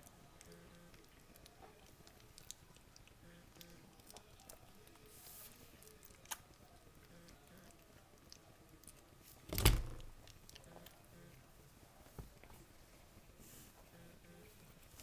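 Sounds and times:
puppies wet smacking: 0.0s - 7.0s.

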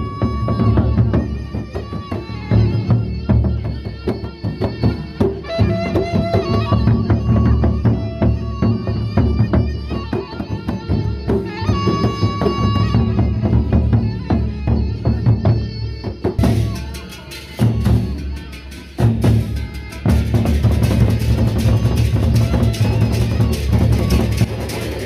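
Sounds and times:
barrel drums fast rhythm: 0.0s - 25.0s.

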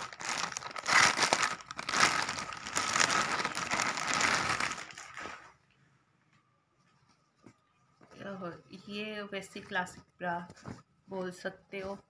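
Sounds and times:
plastic bag crinkling: 0.0s - 5.5s.

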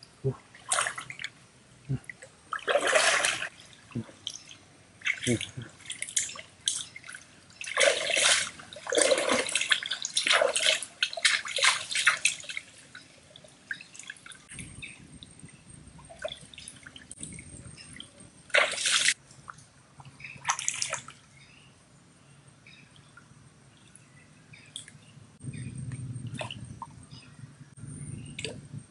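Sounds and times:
water splashing: 0.2s - 21.3s.

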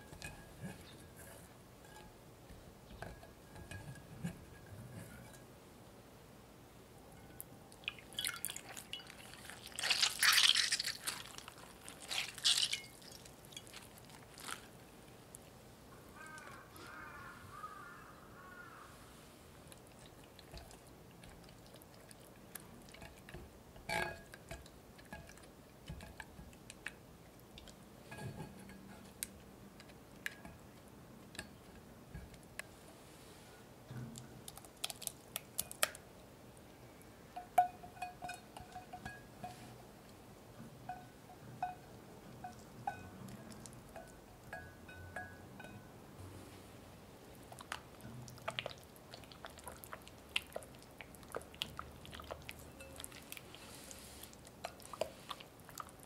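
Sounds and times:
water splashing and dripping: 7.8s - 14.6s
spatula stirring thick compote: 8.6s - 14.9s.

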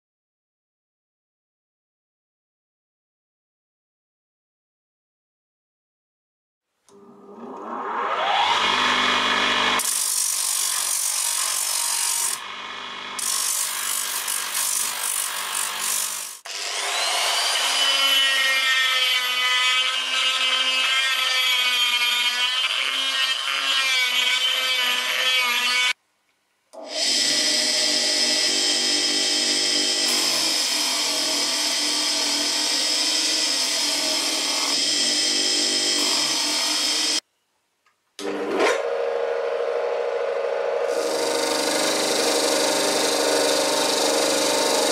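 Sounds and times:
grinder motor whine: 6.9s - 9.9s, 26.8s - 37.2s, 38.2s - 44.9s
die grinder whining: 6.9s - 26.0s, 26.8s - 37.2s, 38.2s - 44.9s.

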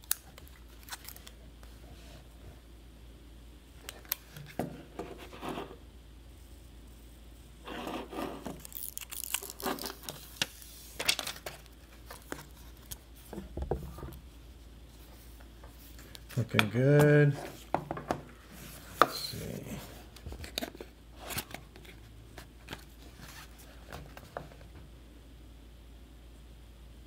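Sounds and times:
plastic film crinkling and tearing: 0.0s - 1.4s, 8.5s - 13.0s.

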